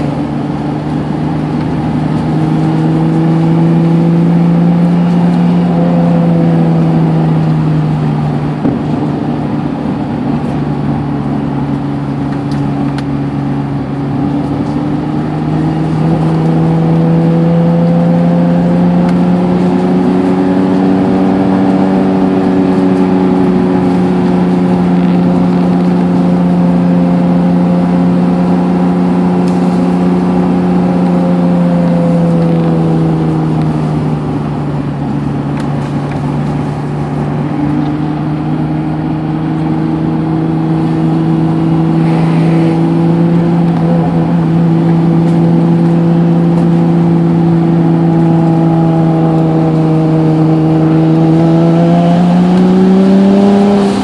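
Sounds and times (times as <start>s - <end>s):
car engine heard from cabin: 0.0s - 54.0s.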